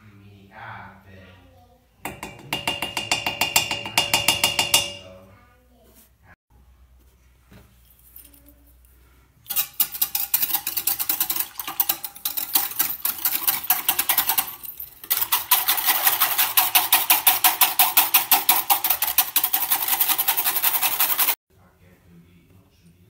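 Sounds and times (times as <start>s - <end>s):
whisk rattling in metal pan: 2.0s - 5.0s, 9.5s - 21.4s.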